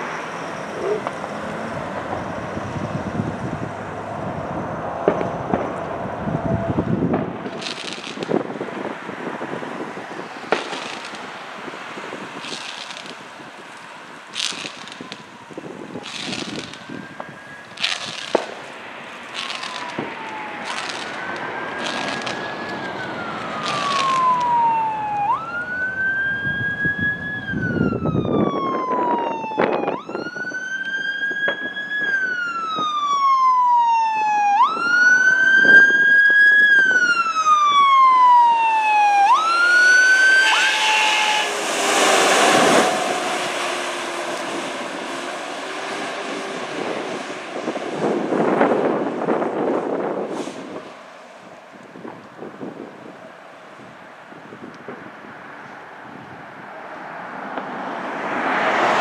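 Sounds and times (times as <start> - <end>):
fire engine siren wailing: 0.0 - 59.0
truck engine and road noise: 0.0 - 59.0
short siren blasts: 14.4 - 45.0.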